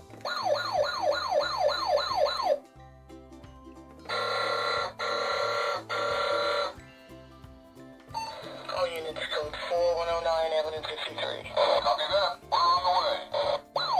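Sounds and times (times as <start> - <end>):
toy yelping siren: 0.2 - 2.6, 4.1 - 6.8, 11.6 - 13.9
toy horn blast: 4.1 - 6.8, 11.7 - 13.9.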